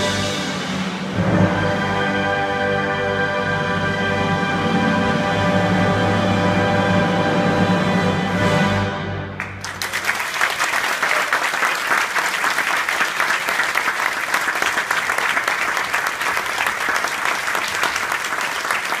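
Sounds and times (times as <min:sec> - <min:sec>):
audience applauding: 0:09.4 - 0:19.0.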